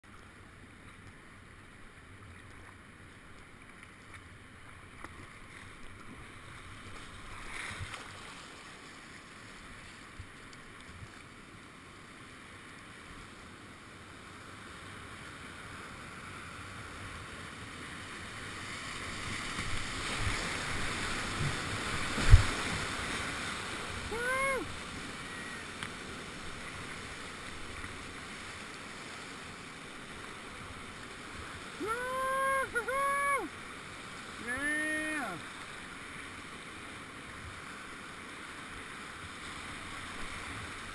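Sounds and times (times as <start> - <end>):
rushing whitewater: 0.2 - 40.9
person shouting: 24.1 - 24.7, 31.8 - 33.5, 34.4 - 35.4.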